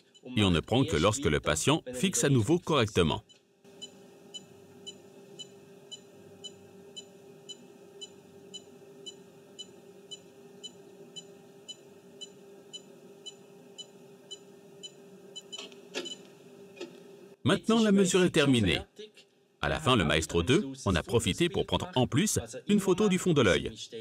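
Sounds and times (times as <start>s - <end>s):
steady hum: 0.0s - 17.4s
machine beeping evenly: 3.2s - 16.2s.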